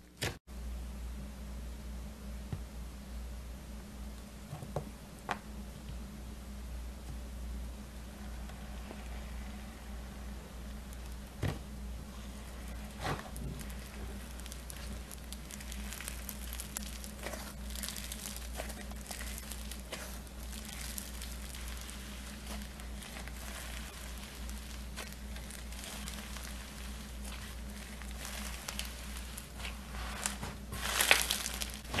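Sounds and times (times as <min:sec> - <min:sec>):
slime crackling and crinkling: 0:08.1 - 0:32.0.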